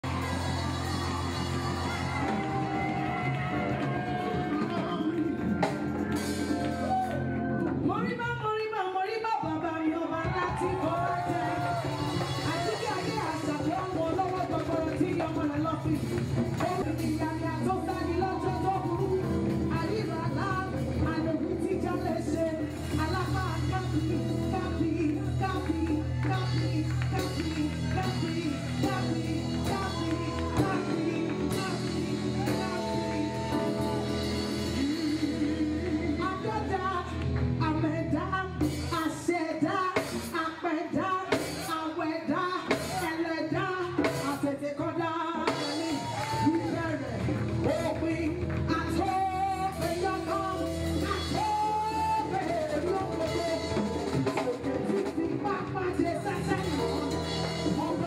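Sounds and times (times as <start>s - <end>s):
steady bass line: 0.0s - 7.6s, 16.4s - 38.8s
band accompaniment: 0.0s - 58.0s
woman singing gospel: 7.8s - 58.0s.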